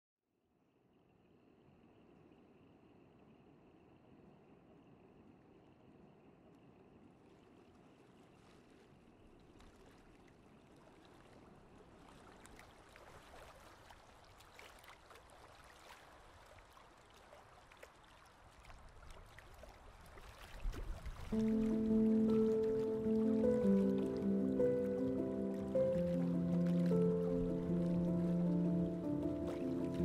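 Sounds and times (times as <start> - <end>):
water lapping among rocks: 7.0 - 21.8
small splashes: 7.2 - 30.0
sustained music chord: 21.4 - 30.0.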